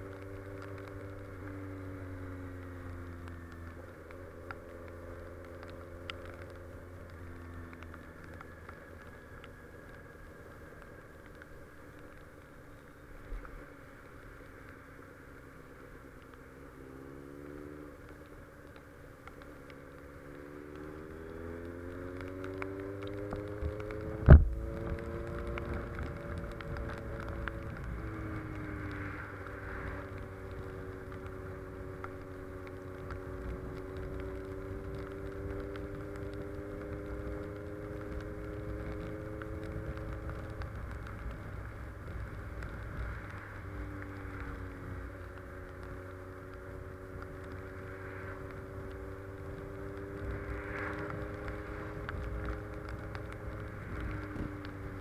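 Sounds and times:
motorcycle engine accelerating: 16.2s - 55.0s.

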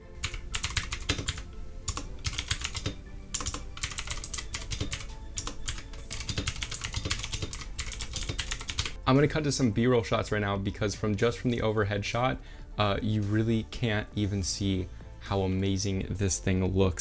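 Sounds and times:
fast typing on mechanical keyboard: 0.2s - 9.0s.

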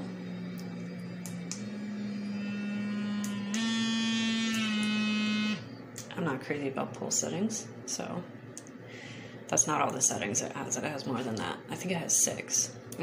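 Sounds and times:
vibrator motor buzzing: 0.0s - 6.0s.

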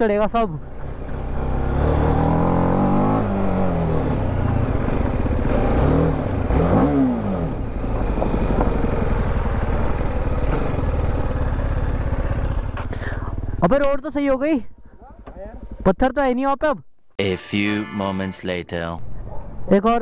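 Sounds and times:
motorcycle engine revving: 0.6s - 13.6s.

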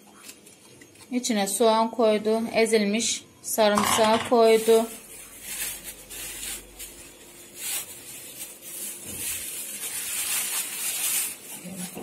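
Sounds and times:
hands rustling and rubbing: 4.5s - 12.0s.

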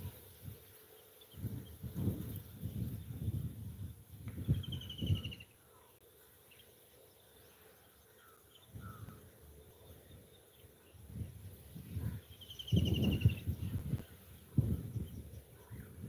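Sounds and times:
faint bird chirps: 4.3s - 16.0s.

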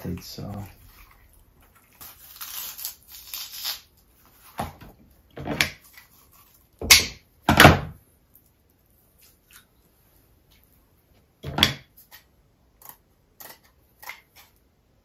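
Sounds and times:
kitchen shears snipping: 2.0s - 3.9s.

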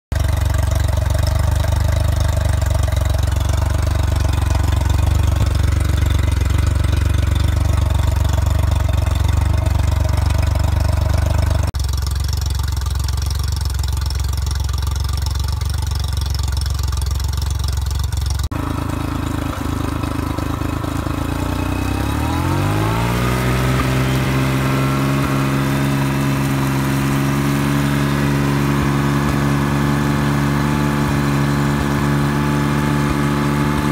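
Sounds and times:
outboard motor running: 0.1s - 33.9s.

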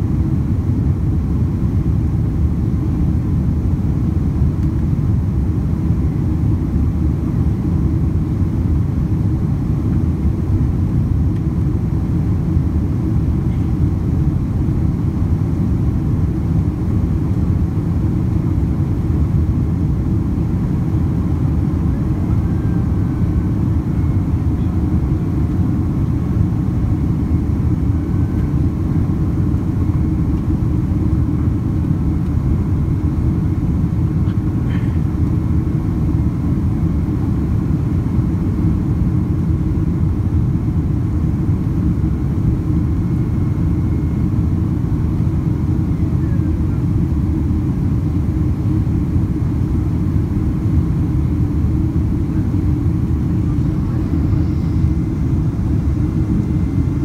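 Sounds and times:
airliner cabin engine roar: 0.0s - 57.0s.

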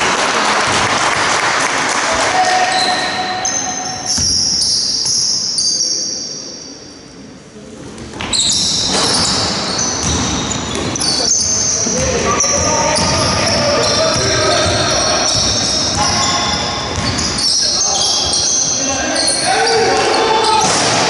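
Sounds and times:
sneakers squeaking on court: 2.7s - 6.7s, 8.0s - 21.0s
basketball bouncing: 4.1s - 4.5s, 10.0s - 10.9s, 12.0s - 17.3s
voices: 10.8s - 21.0s.

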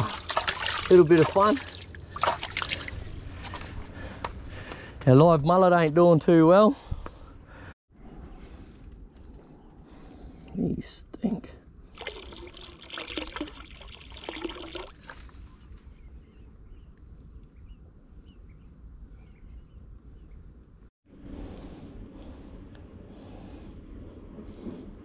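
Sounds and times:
water pouring from plastic bottle: 0.0s - 3.6s, 12.0s - 15.4s
high insect trill: 20.6s - 25.0s.

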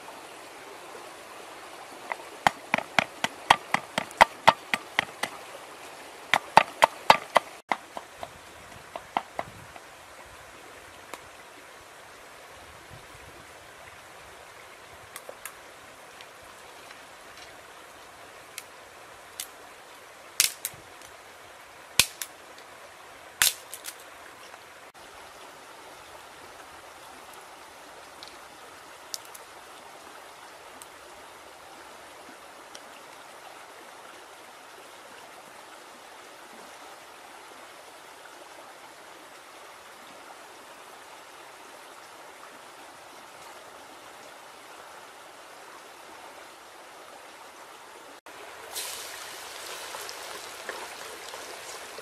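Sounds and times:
sharp knocks: 2.4s - 5.4s, 6.3s - 9.8s
steady hiss: 48.0s - 52.0s.

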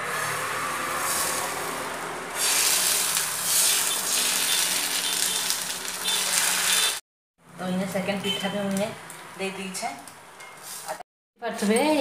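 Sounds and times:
batter sizzling on a griddle: 1.0s - 7.0s.

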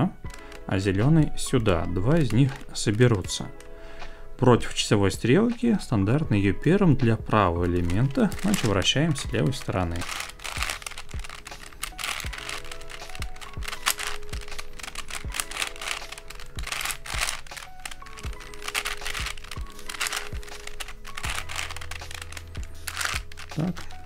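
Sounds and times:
plastic puzzle clicking: 0.2s - 3.7s, 7.6s - 24.0s
background music with beat: 5.2s - 24.0s.

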